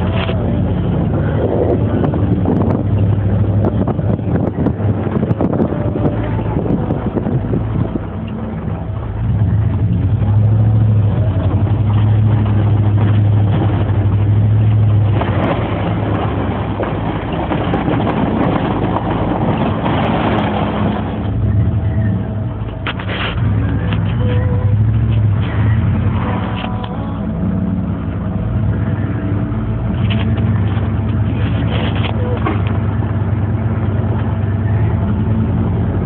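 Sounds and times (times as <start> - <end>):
pickup engine running under load: 0.0 - 36.0
loud rushing noise: 10.9 - 23.9.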